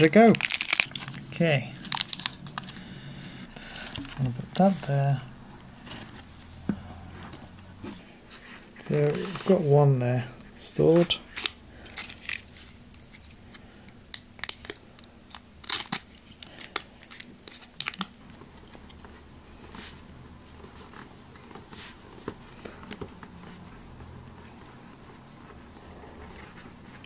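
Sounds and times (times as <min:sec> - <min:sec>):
foil sachet tearing and crinkling: 0:00.0 - 0:02.7, 0:03.7 - 0:04.8, 0:11.4 - 0:12.6, 0:14.1 - 0:18.2
soft handling noise: 0:00.0 - 0:14.1, 0:16.1 - 0:27.0.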